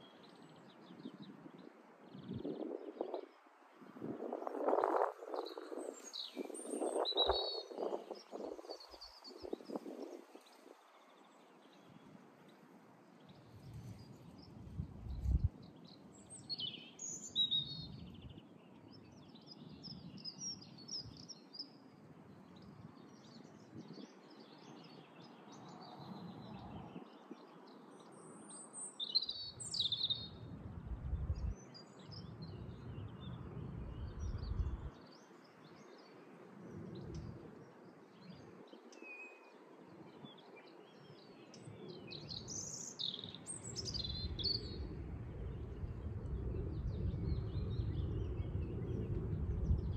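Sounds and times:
songbirds chirping and trilling: 0:00.0 - 0:49.9
low rumble: 0:44.6 - 0:49.9.

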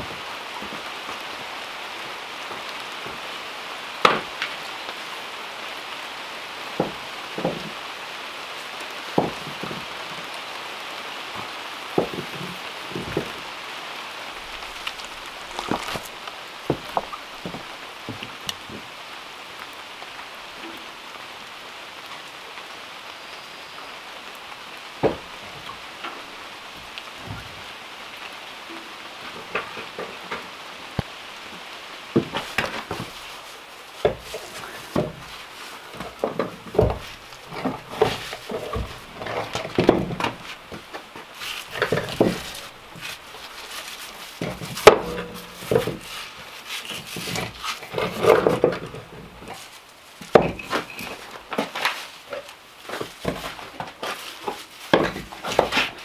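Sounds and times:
rain hiss: 0:00.0 - 0:56.0
stones clunking and scraping: 0:09.2 - 0:10.3, 0:11.4 - 0:13.4, 0:14.3 - 0:18.9, 0:25.0 - 0:25.8, 0:29.3 - 0:31.1, 0:32.2 - 0:56.0.

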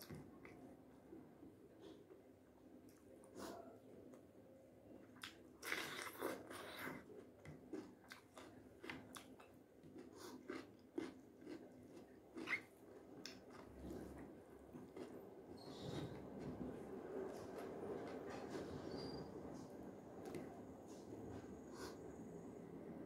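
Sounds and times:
chewing with wet mouth clicks: 0:05.2 - 0:13.7.

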